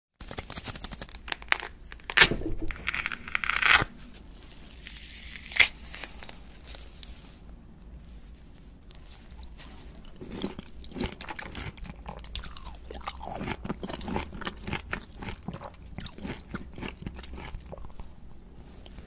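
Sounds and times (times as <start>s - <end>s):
peel ripping off fruit: 0.3s - 3.9s, 4.7s - 6.4s
fruit pulled apart rip: 1.3s - 3.9s, 4.6s - 6.4s
soft rustling: 6.1s - 10.4s.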